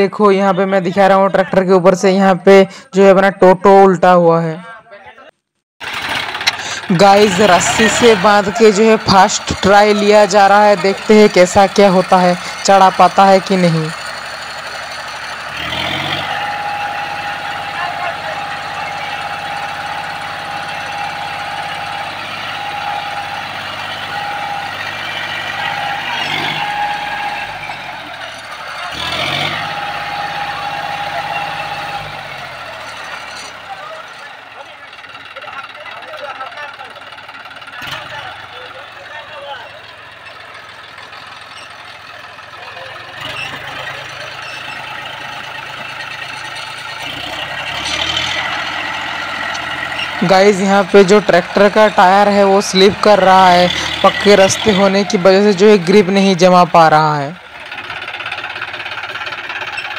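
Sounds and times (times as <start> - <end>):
tractor diesel engine straining: 0.0 - 59.9.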